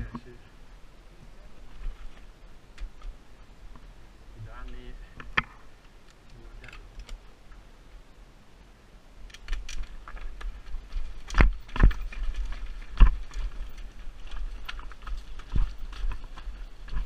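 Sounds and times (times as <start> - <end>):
bike rattling over stones: 9.3 - 17.0
wheels knocking on rocks: 9.3 - 17.0.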